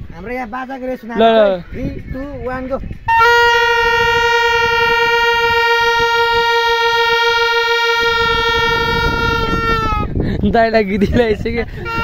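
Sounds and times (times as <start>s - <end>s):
plastic toy trumpets blowing: 3.1s - 10.1s.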